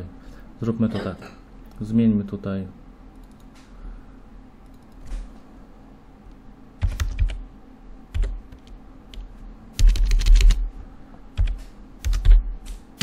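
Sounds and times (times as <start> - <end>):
typing on computer keyboard: 6.8 - 7.4, 8.1 - 8.7, 9.8 - 10.6, 11.4 - 12.4.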